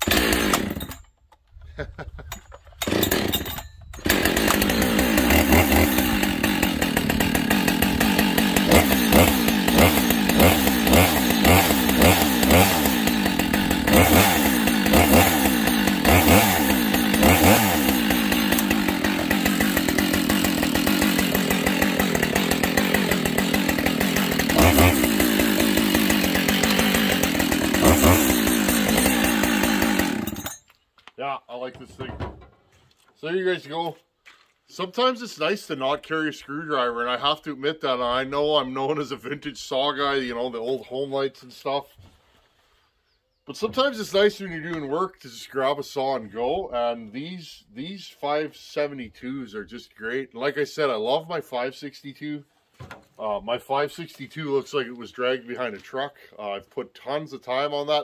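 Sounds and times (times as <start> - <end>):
chainsaw running: 0.0 - 1.1, 2.3 - 30.6.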